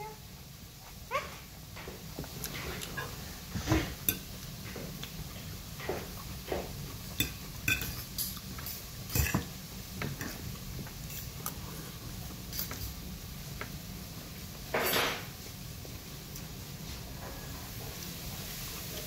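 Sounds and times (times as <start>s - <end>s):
fork clinking on a plate: 7.2s - 9.5s.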